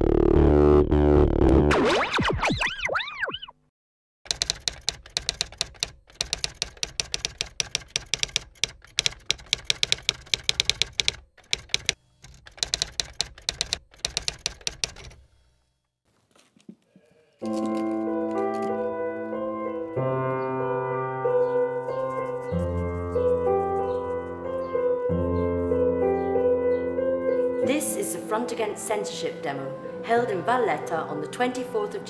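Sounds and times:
music with held chords: 0:00.0 - 0:01.7, 0:18.0 - 0:32.0
typewriter keys clacking: 0:04.3 - 0:15.2, 0:17.4 - 0:18.8.

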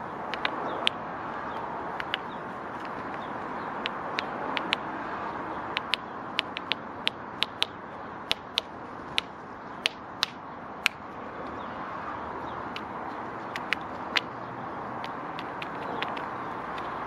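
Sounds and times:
woodpecker tapping on nut: 0:00.3 - 0:04.9, 0:05.7 - 0:11.0, 0:12.7 - 0:14.4, 0:15.0 - 0:17.0.

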